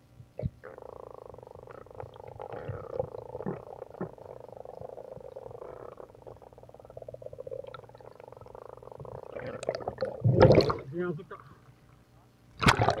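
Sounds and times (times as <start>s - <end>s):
underwater crackle: 0.4s - 13.0s
rush of water and bubbles: 7.0s - 10.9s, 12.6s - 13.0s.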